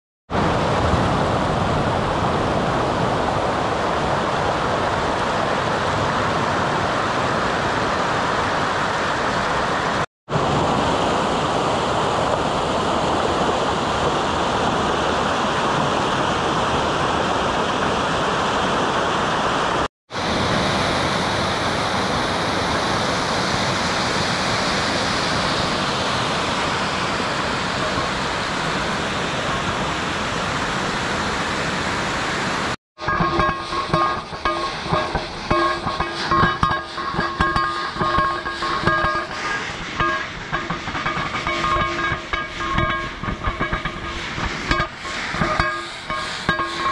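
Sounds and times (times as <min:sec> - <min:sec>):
stream rushing over rocks: 0:00.3 - 0:32.8.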